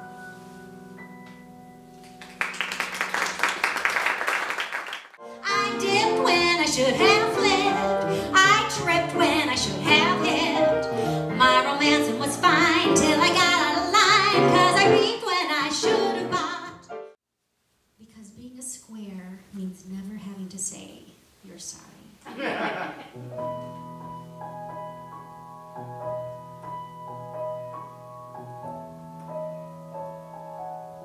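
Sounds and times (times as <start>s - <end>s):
grand piano: 0.0s - 17.2s, 22.5s - 31.0s
audience applauding: 2.0s - 5.2s
woman singing with vibrato: 5.4s - 16.9s.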